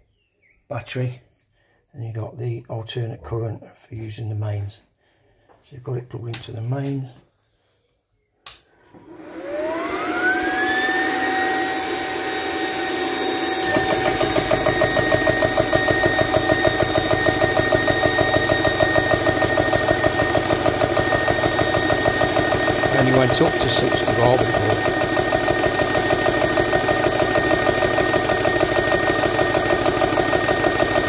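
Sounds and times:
switch click: 8.4s - 8.7s
air compressor motor whine: 8.7s - 31.0s
compressor pump pulsing: 8.9s - 31.0s.

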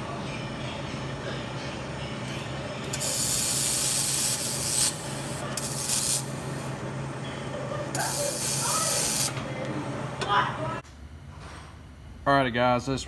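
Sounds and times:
low electrical hum: 0.0s - 13.0s
welding arc crackling: 2.9s - 6.4s, 8.0s - 9.4s.

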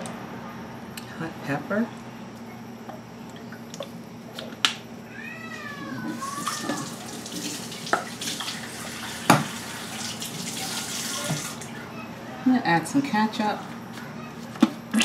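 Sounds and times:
cat meowing: 5.1s - 7.2s
water running from a tap: 6.2s - 11.7s.

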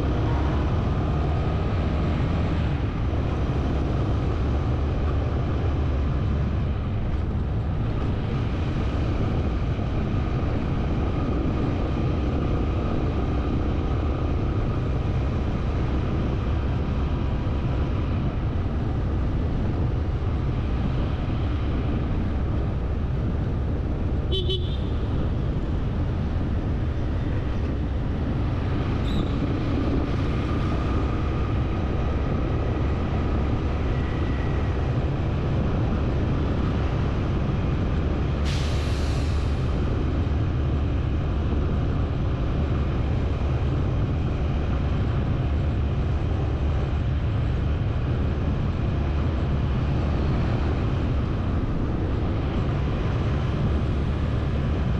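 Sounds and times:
low vehicle rumble: 0.0s - 54.9s
short horn toot: 24.3s - 25.0s.

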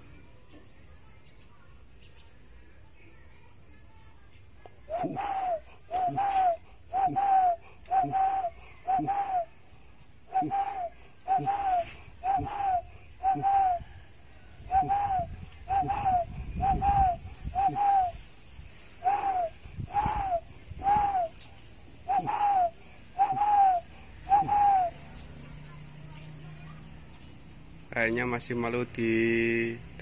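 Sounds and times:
dove cooing: 4.9s - 9.6s, 10.3s - 18.3s, 19.0s - 25.2s.

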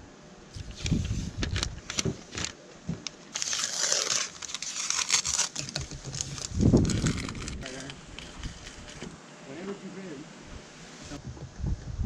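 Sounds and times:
paper peeling and crinkling: 0.6s - 2.6s, 3.2s - 9.2s.

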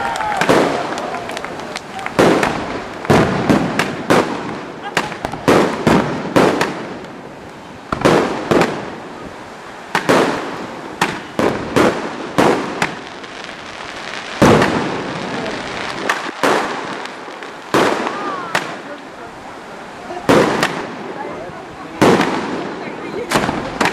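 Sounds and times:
firework shells bursting: 0.0s - 9.1s, 9.8s - 18.9s, 20.2s - 21.1s, 22.0s - 23.9s.

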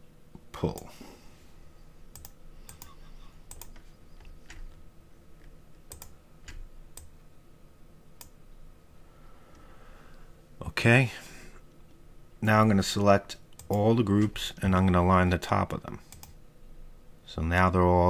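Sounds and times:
faint steady hum: 0.0s - 18.0s
mouse and keyboard clicking: 2.1s - 4.8s.

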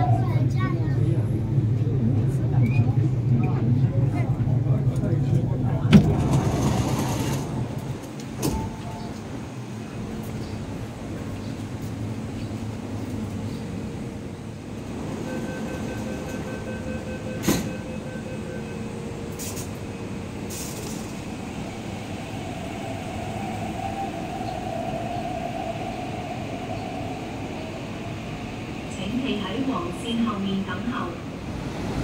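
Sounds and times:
train and platform rumble: 0.0s - 32.0s
train doors shutting knock: 8.0s - 9.3s, 15.3s - 18.5s
door-closing warning beeps: 15.2s - 18.8s.

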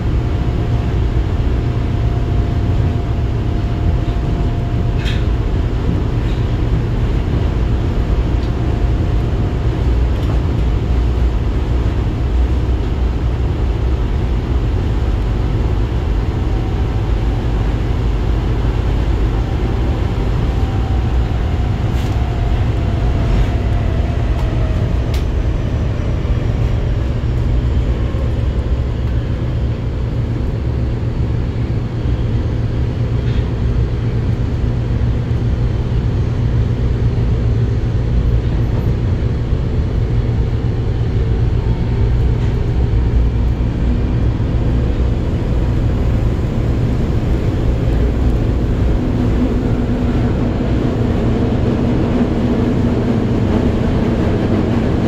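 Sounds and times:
subway wheels rumbling on rail: 0.0s - 55.0s.

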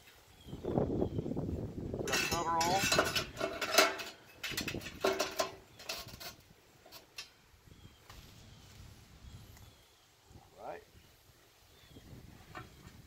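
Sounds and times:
metal plates clanking: 2.0s - 7.3s.

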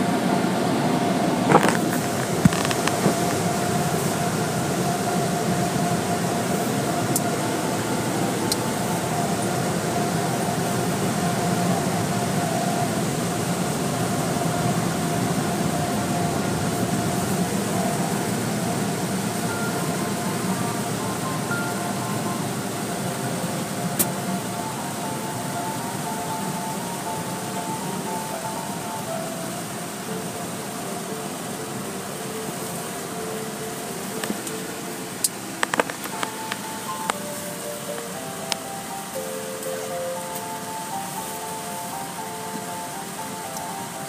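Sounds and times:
car wash machinery rushing: 0.0s - 44.0s
constant hum: 0.0s - 44.0s.

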